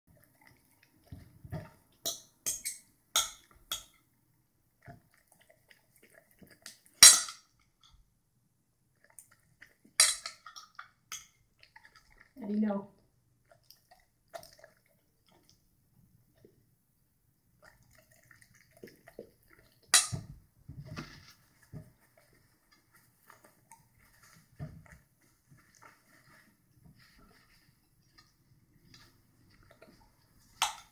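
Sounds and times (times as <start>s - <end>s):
cutlery clinking on a plate: 2.1s - 4.0s.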